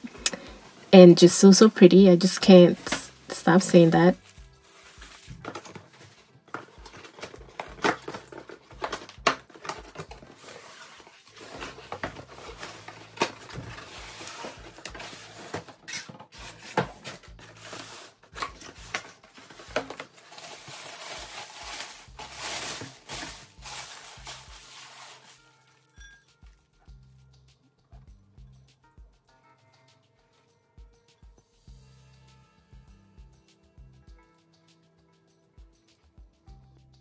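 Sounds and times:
bubble wrap rustling: 0:00.0 - 0:26.2.

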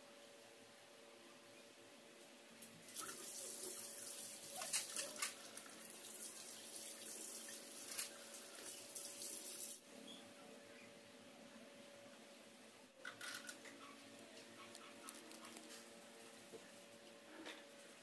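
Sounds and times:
faint running water: 0:02.8 - 0:09.8.

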